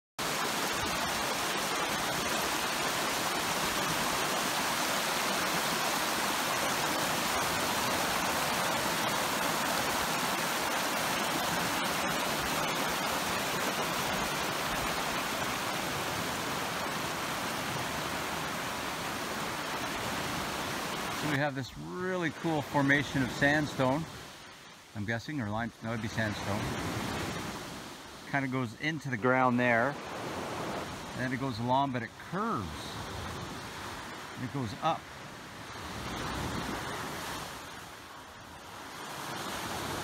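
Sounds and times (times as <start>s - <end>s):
stream rushing over stones: 0.2s - 40.0s.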